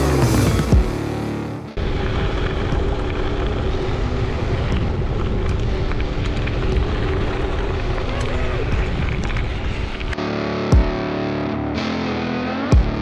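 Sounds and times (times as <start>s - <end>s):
bike tyres rolling on gravel: 1.8s - 10.2s
wind buffeting microphone: 1.8s - 10.2s
music track: 9.7s - 13.0s.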